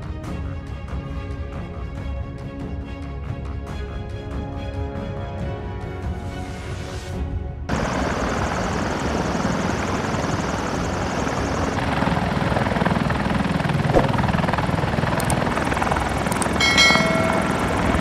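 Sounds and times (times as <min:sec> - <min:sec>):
helicopter rotor chop: 0:07.7 - 0:18.0.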